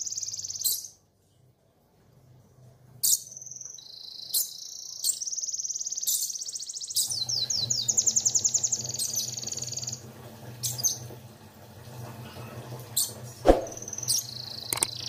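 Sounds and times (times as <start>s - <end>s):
canary singing trills: 0.0s - 1.0s, 3.0s - 10.0s, 13.8s - 15.0s.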